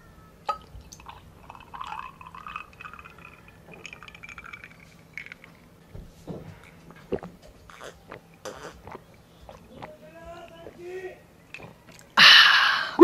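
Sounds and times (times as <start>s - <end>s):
juice pouring into a glass: 0.5s - 5.6s.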